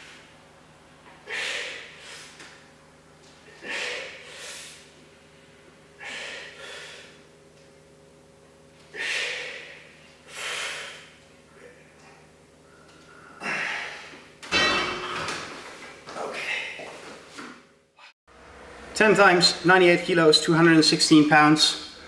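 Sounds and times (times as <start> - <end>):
person breathing hard: 3.5 - 4.9, 6.0 - 7.3, 8.9 - 12.0
metal barbell clanking into rack: 14.5 - 15.6.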